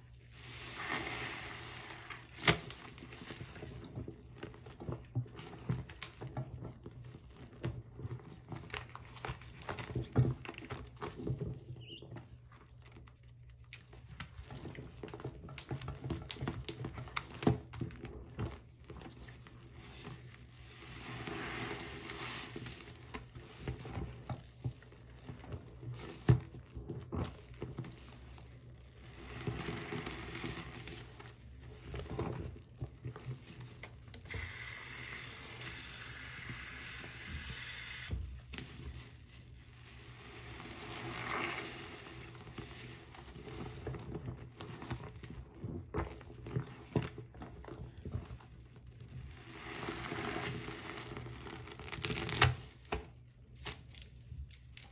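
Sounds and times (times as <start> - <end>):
sponge squelching in foamy water: 0.0 - 8.8, 18.1 - 34.0, 38.7 - 52.9.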